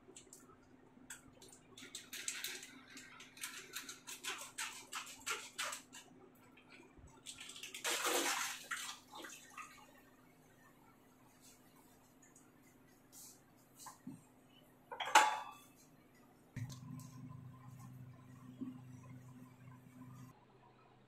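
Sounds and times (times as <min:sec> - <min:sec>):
steady low hum: 0:16.1 - 0:20.4.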